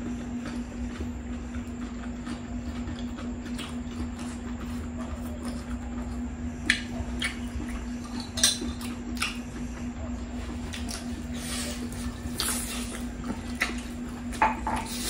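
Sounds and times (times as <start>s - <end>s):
steady low hum: 0.0s - 15.0s
wet chewing and squishing: 0.0s - 15.0s.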